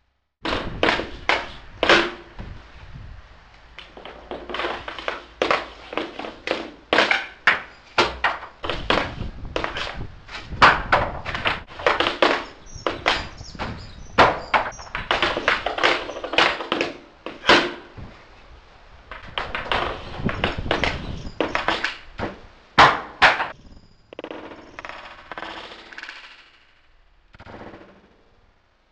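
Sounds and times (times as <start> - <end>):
hockey stick tapping puck: 3.8 - 10.0, 10.6 - 17.9, 19.1 - 22.0.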